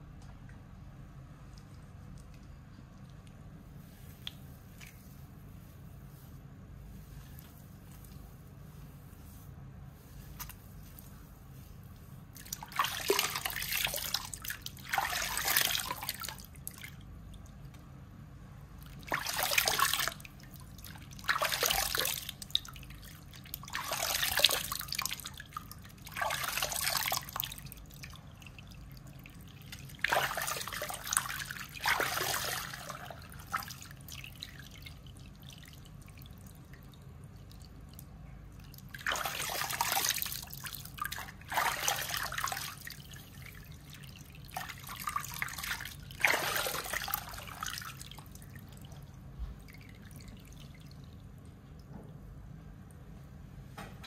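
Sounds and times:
faint dripping: 0.2 - 6.3
water splashing through wet hair: 12.4 - 17.0, 18.8 - 36.7, 38.7 - 49.0.

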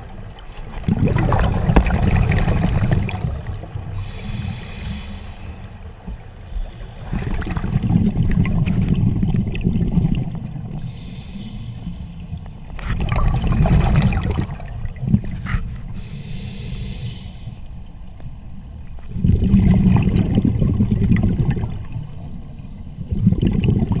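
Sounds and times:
exhaled bubbles rumbling: 0.0 - 4.4, 5.6 - 11.0, 11.8 - 16.1, 18.0 - 24.0
regulator hissing inhale: 4.0 - 5.8, 10.8 - 12.5, 15.9 - 18.0, 22.0 - 23.2.

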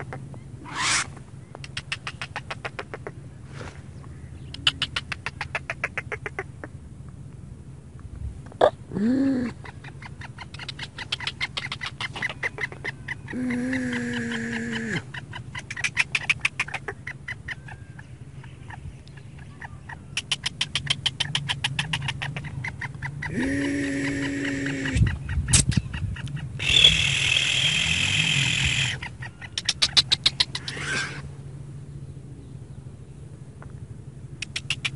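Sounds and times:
bird calling with harsh clicking notes: 0.0 - 3.2, 4.0 - 6.5, 9.6 - 18.1, 19.0 - 31.2, 33.6 - 34.9
steady humming tones: 0.0 - 34.9.

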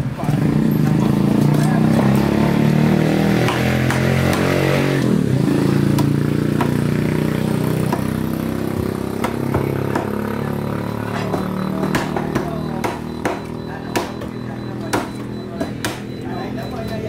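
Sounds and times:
motorcycle engine running: 0.0 - 17.0
cleaver chopping on wooden block: 3.4 - 4.8, 5.9 - 6.8, 7.8 - 10.3, 11.1 - 16.1.

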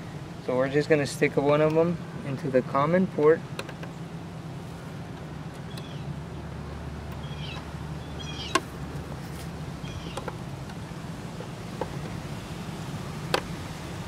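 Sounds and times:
bird chirping: 5.6 - 6.2, 7.2 - 8.7, 9.8 - 10.4.

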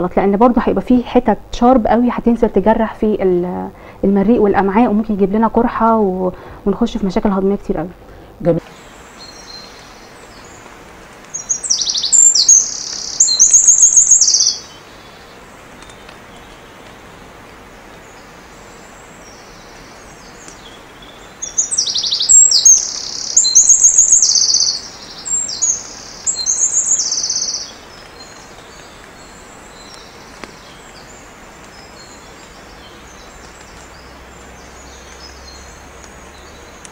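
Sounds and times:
faint steady hiss: 0.0 - 36.9
bird singing trilled phrases: 9.2 - 10.6, 11.3 - 16.1, 18.1 - 36.9.

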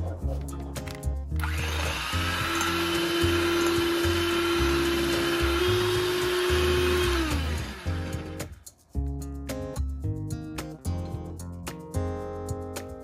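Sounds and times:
electric hand mixer whirring: 1.4 - 8.5.

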